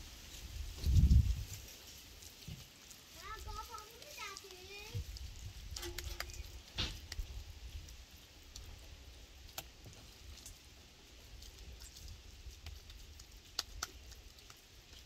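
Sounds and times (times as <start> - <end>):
hands slapping minced meat: 5.8 - 7.3, 12.6 - 14.7.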